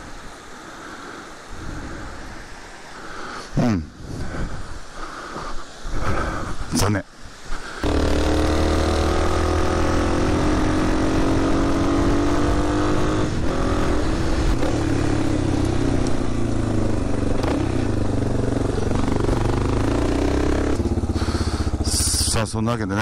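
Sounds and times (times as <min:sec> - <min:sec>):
wind and road noise: 0:00.0 - 0:23.0
motorcycle engine running: 0:07.8 - 0:23.0.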